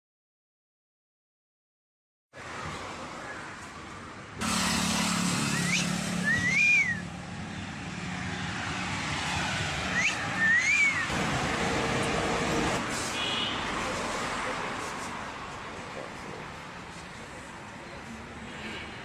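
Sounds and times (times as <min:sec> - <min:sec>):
road traffic: 0:02.3 - 0:19.0
vehicle engine humming: 0:03.2 - 0:19.0
wolf whistles: 0:05.5 - 0:07.0, 0:09.9 - 0:11.1.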